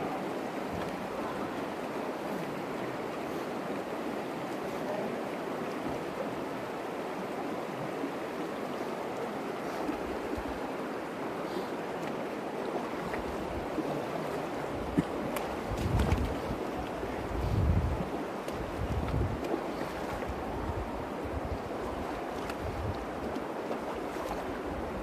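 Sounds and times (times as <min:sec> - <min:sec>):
river rippling over rocks: 0:00.0 - 0:25.0
wind buffeting microphone: 0:14.8 - 0:23.4.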